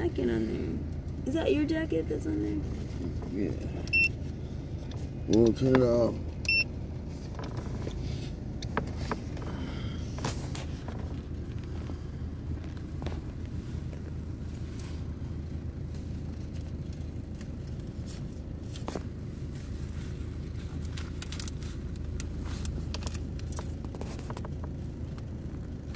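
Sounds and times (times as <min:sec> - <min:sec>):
vehicle idling hum: 0:00.0 - 0:25.9
light clicks and crackles: 0:15.9 - 0:25.9.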